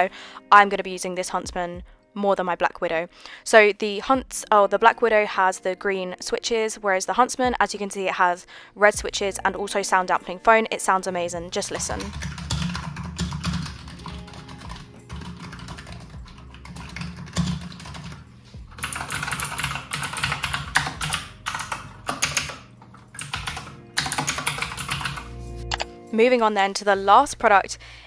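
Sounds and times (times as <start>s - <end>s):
sharp clicky keyboard typing: 11.7s - 25.9s
soft dull keyboard typing: 11.7s - 25.9s.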